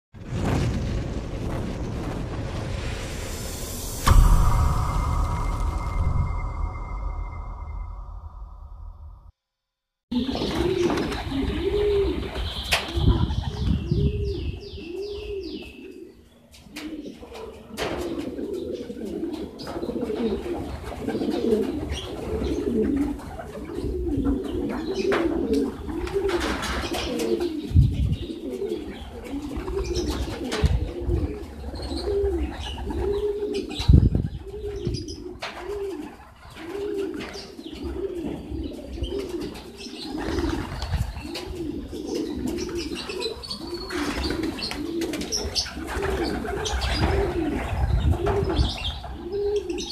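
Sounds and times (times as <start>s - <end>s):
pigeons cooing: 10.1s - 49.9s.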